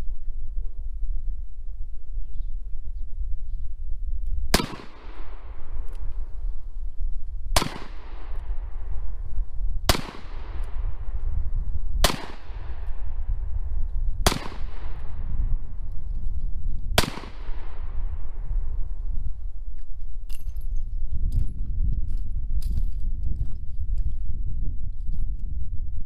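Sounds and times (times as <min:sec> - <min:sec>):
revolver gunshots: 0:04.5 - 0:05.7, 0:07.6 - 0:08.7, 0:09.9 - 0:10.8, 0:12.0 - 0:13.0, 0:14.2 - 0:15.2, 0:17.0 - 0:18.0
gunshot echo: 0:04.5 - 0:05.8, 0:07.6 - 0:08.8, 0:09.9 - 0:11.2, 0:12.0 - 0:13.2, 0:14.2 - 0:15.3, 0:17.0 - 0:18.4.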